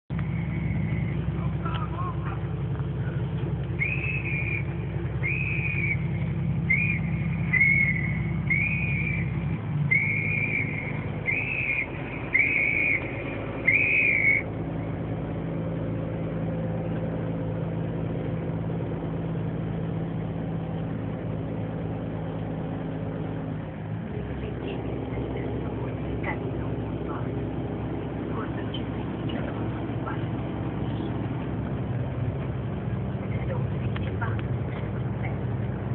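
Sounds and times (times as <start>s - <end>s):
bus engine drone: 0.0s - 35.9s
short high whistle-like notes: 3.8s - 14.5s.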